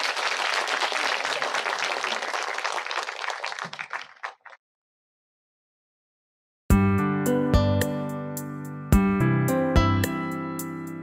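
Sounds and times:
audience applauding: 0.0s - 4.6s.

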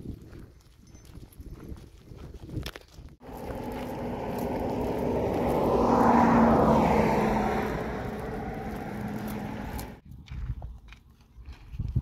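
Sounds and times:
vehicle engine passing: 3.2s - 10.0s.

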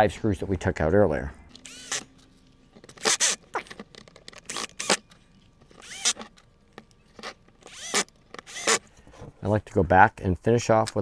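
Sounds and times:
cordless drill motor whine: 1.6s - 2.0s, 5.8s - 6.2s, 7.6s - 8.8s.

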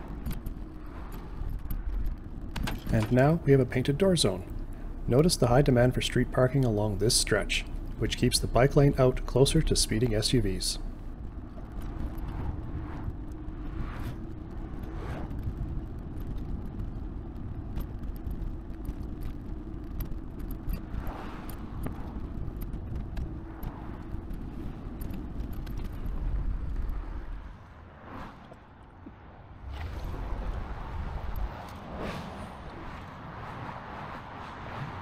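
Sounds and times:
bike road rumble: 0.0s - 35.0s
cars passing: 0.0s - 35.0s
wind: 0.0s - 35.0s.

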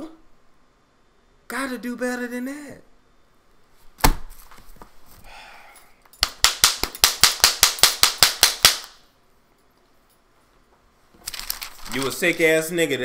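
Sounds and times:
sharp cracks: 6.2s - 9.1s.

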